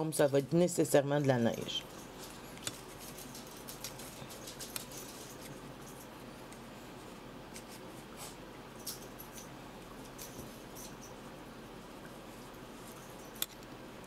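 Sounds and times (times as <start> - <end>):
paper rustling and ticks: 1.6 - 6.6.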